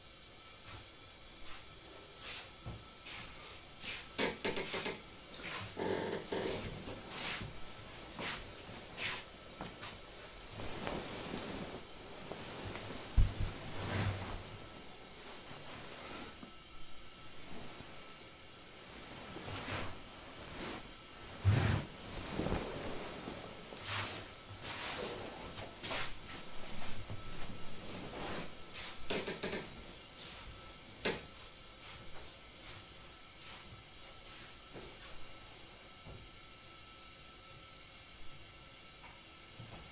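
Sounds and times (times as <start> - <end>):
faint steady hiss: 0.0 - 39.9
socked feet sliding on mats: 0.6 - 16.6, 19.0 - 29.1, 31.3 - 35.2
rustle of clothing: 0.6 - 35.8
shuffling footsteps on mats: 4.7 - 15.5.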